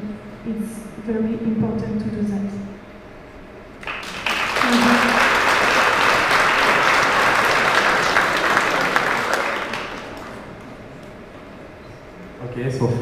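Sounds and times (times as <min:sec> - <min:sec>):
audience applauding: 0:03.8 - 0:11.3.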